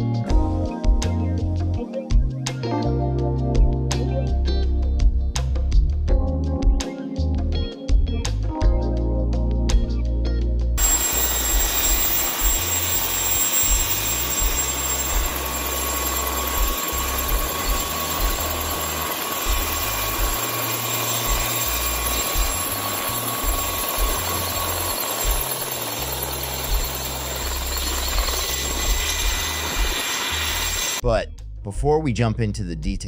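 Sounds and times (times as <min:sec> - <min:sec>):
helicopter engine and rotor: 0:10.8 - 0:31.0.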